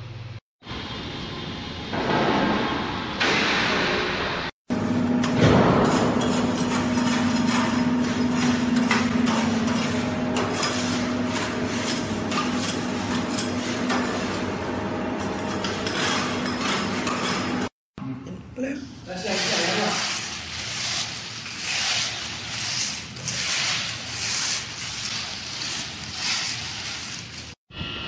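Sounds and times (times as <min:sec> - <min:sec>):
machinery humming: 0:27.7 - 0:28.0.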